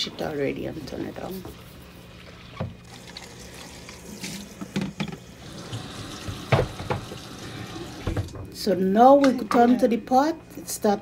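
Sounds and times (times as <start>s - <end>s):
tap running into plastic bowl: 6.2s - 7.3s.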